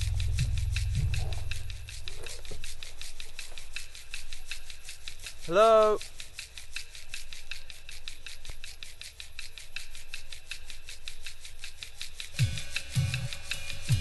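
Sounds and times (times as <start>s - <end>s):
low notes: 0.0s - 3.0s
rhythmic rasping: 0.0s - 14.0s.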